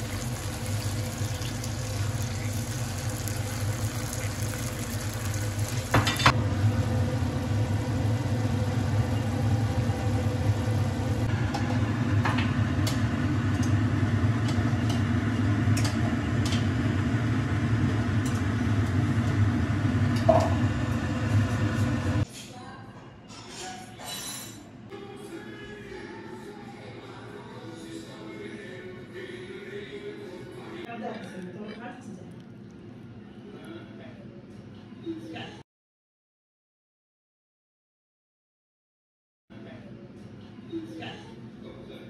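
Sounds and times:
food sizzling in a frying pan: 0.0 - 11.3
steady low hum: 0.0 - 22.2.

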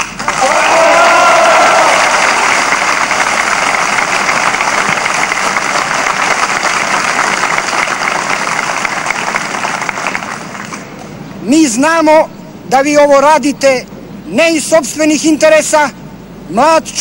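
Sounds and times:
crowd applauding: 0.0 - 10.8.

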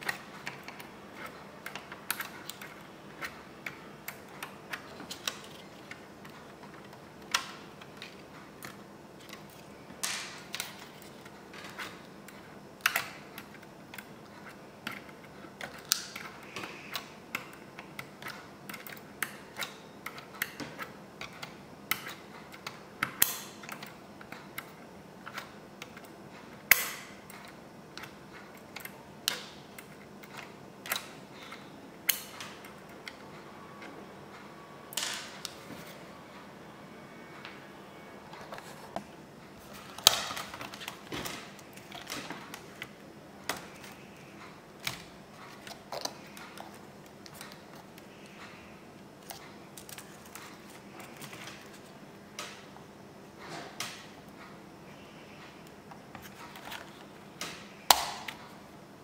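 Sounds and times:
sharp plastic snaps: 57.4 - 58.5.

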